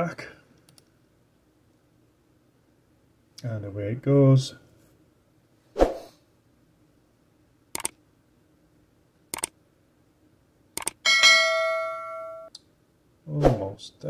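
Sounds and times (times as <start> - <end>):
double mouse clicks: 7.8 - 8.0, 9.3 - 9.5, 10.8 - 11.0
bell ding: 11.1 - 12.5.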